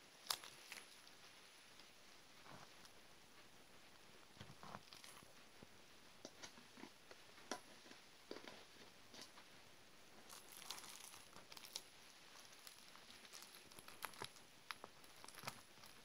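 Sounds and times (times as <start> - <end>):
plastic wrap crinkling: 0.0 - 1.4, 4.4 - 5.4, 10.2 - 16.0.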